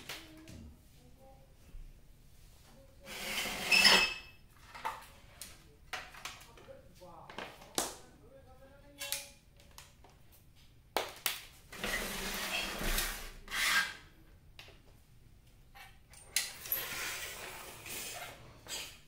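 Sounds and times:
circuit board scraping on tile floor: 3.0s - 4.3s, 11.7s - 14.0s, 16.6s - 19.0s.

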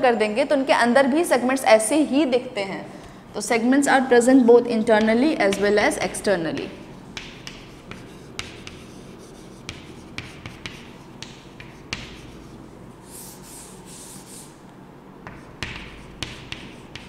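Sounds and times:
chalk tapping on chalkboard: 4.9s - 14.6s, 15.2s - 17.0s
chalk scratching on chalkboard: 5.5s - 14.6s, 15.3s - 17.0s.

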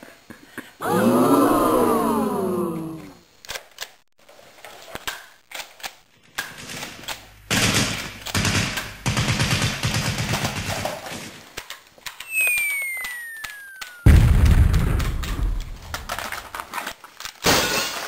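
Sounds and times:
machine-gun fire: 7.5s - 11.3s, 14.0s - 16.5s
high falling whistle: 12.2s - 15.5s.

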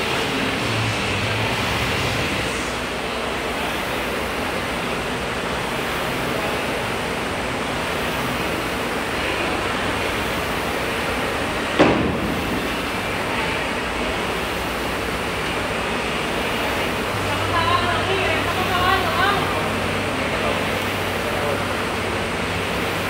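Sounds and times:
rowing machine flywheel whooshing: 0.0s - 17.5s
sharp knock: 11.8s - 12.9s.

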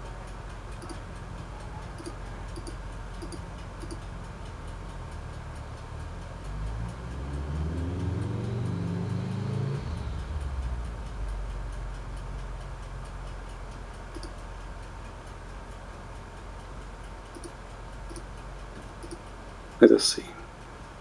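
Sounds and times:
faint regular ticking: 0.0s - 21.0s
steady low hum: 0.0s - 21.0s
soft clicks: 0.7s - 1.0s, 2.0s - 4.1s, 14.1s - 14.5s, 17.2s - 19.9s
low tones: 0.8s - 1.0s, 2.0s - 4.0s.

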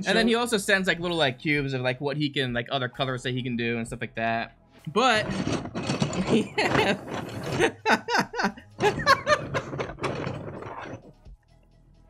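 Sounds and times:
men laughing: 6.2s - 10.0s.

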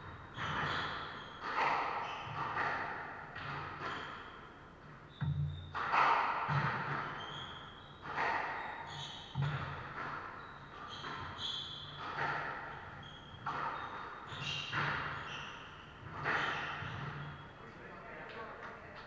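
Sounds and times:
shoes squeaking on wooden floor: 0.0s - 17.7s
squash ball cracking off walls: 5.7s - 7.3s.

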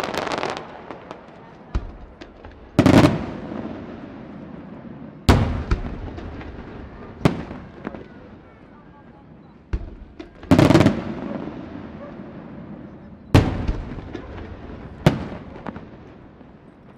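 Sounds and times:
firework booms with echo: 0.0s - 8.6s, 9.7s - 16.9s
firework crackling: 0.0s - 8.6s
firework bangs: 0.0s - 8.8s, 9.6s - 16.9s.

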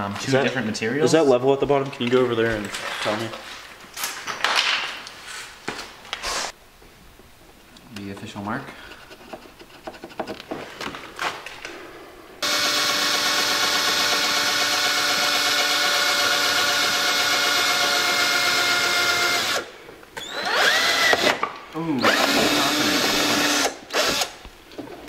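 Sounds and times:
cordless drill boring: 12.4s - 21.4s, 22.0s - 24.4s.

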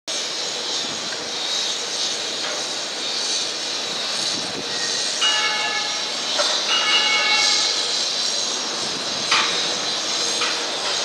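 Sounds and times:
distant city noise: 0.1s - 11.0s
high ringing tones: 5.2s - 8.0s.

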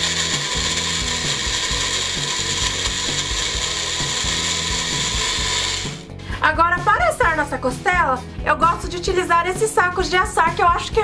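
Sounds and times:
blender motor running: 0.0s - 6.2s.

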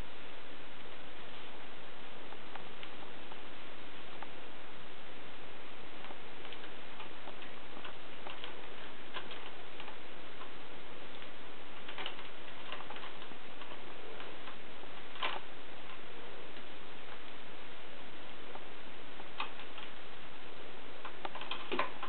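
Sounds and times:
steady hiss: 0.0s - 22.0s
claws clicking and scratching: 6.1s - 17.3s.

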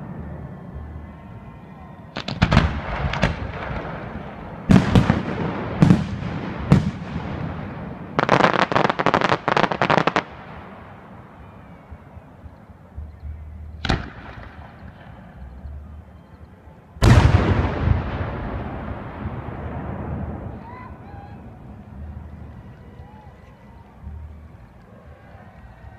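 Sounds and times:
firework crackling reports: 0.0s - 11.6s.

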